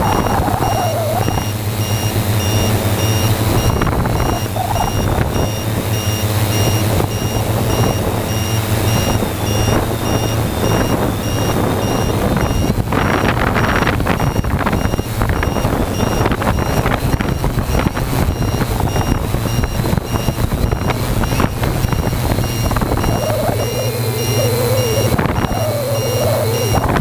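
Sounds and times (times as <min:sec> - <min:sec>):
drone motors humming: 0:00.0 - 0:27.0
rapid high beeps: 0:00.0 - 0:27.0.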